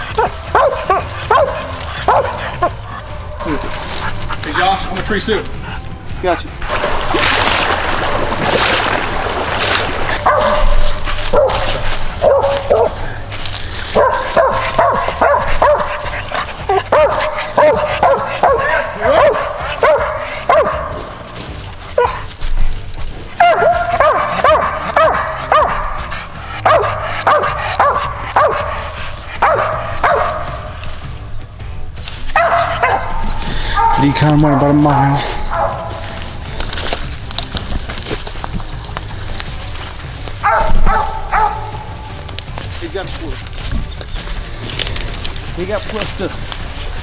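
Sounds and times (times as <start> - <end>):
dog barking in high yelps: 0.0 - 3.8, 10.2 - 13.0, 13.9 - 21.1, 22.0 - 22.3, 23.4 - 28.8, 29.4 - 30.8, 32.0 - 34.2, 35.3 - 36.1, 40.4 - 41.8.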